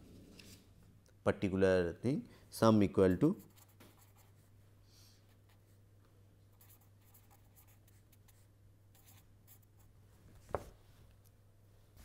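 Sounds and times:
low electrical hum: 0.0 - 12.0
marker scratching on paper: 3.4 - 4.5, 6.5 - 9.9.

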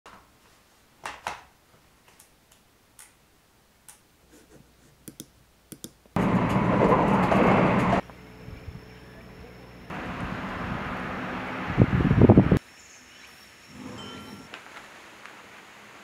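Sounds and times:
loud rushing noise with hum: 9.9 - 12.6.

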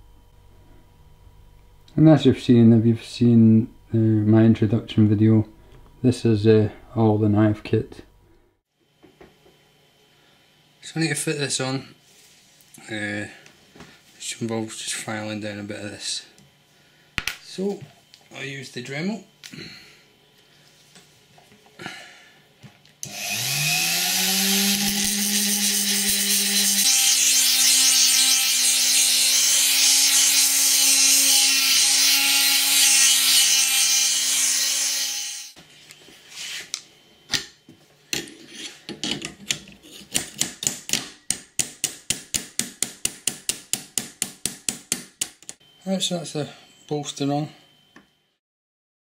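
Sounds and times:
rotary tool grinding metal: 23.0 - 35.6.

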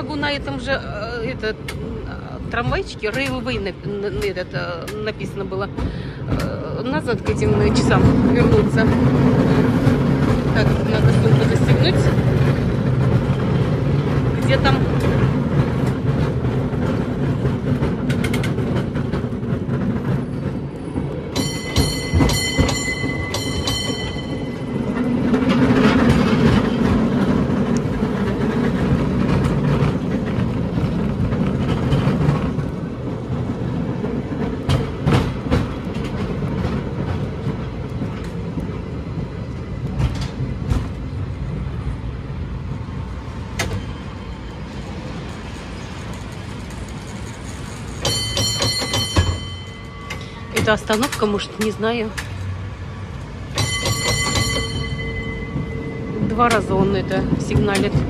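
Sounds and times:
tram rumbling on track: 0.0 - 58.0
ringing signal bell: 53.6 - 56.4.

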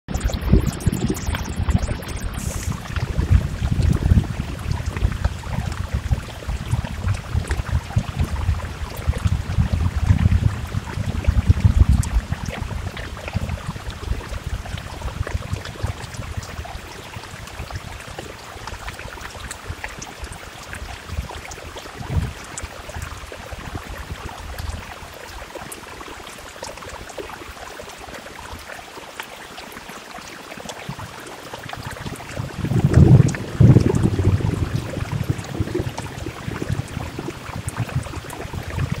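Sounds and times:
low rumble: 0.1 - 15.9
steady rain: 0.1 - 39.0.

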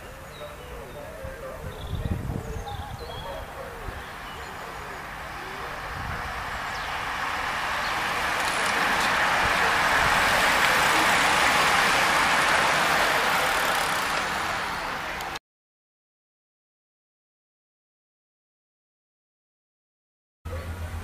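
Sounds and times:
bicycle tyres on asphalt: 3.4 - 15.4.

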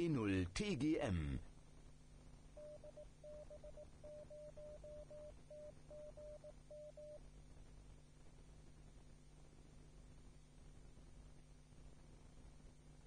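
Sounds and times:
low hum: 1.1 - 13.0
morse code tone: 2.6 - 7.2.

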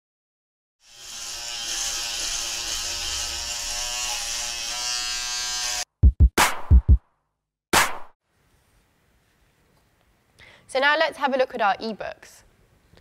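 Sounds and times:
electric shaver buzzing: 0.8 - 5.9.

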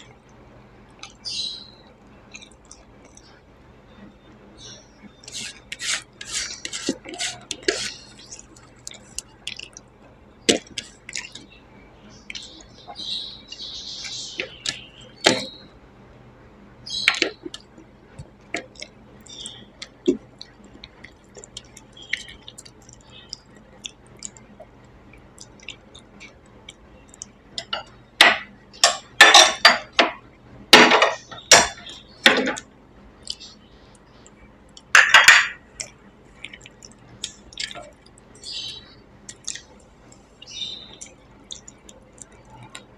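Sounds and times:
chewing and mouth sounds: 2.3 - 3.3, 5.2 - 11.5, 17.5 - 27.7, 35.7 - 38.4, 39.2 - 42.9
fingers working food on steel plate: 5.2 - 9.3.

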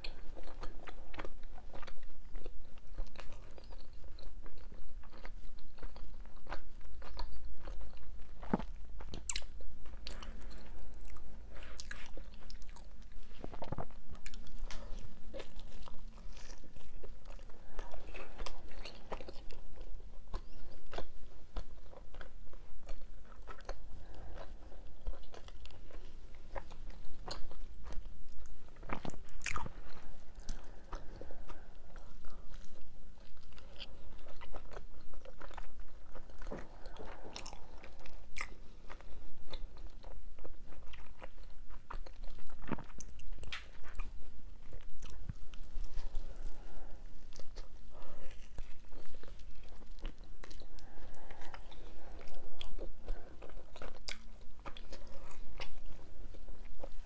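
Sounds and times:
person chewing: 0.0 - 57.0.

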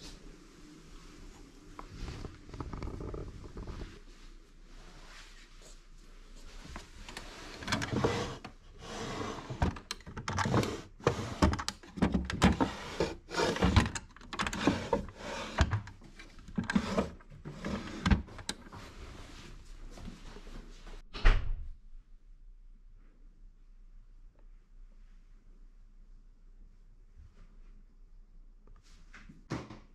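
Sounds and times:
drawers sliding: 6.8 - 19.4.

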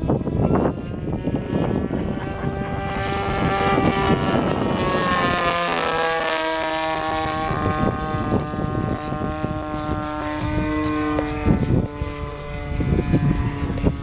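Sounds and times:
model airplane engine running: 0.0 - 14.0.

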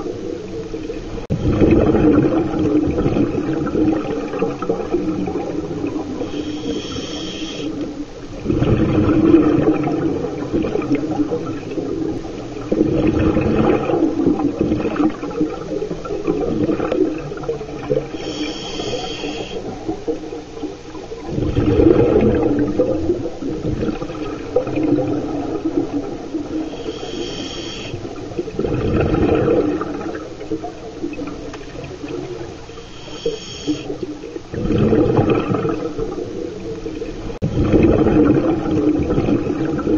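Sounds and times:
exhaled bubbles rushing: 0.0 - 39.9
hissing regulator inhalations: 6.2 - 7.8, 18.1 - 19.7, 26.6 - 28.1, 32.7 - 34.0.

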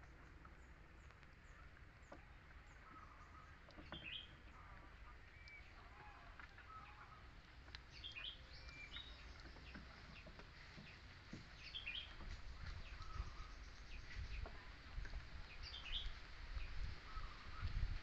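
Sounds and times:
faint bird chirps: 11.6 - 14.8, 16.8 - 17.8.

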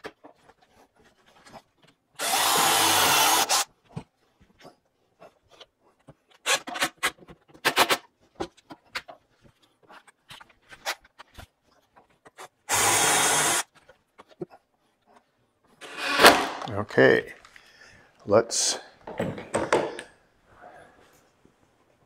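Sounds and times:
drill running: 2.2 - 3.6, 12.7 - 13.6.

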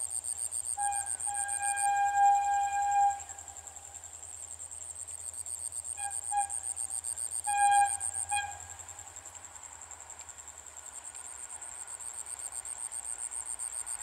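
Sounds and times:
insects chirping: 0.0 - 14.0
distant locomotive horn blasts: 0.8 - 3.8, 7.4 - 9.1.

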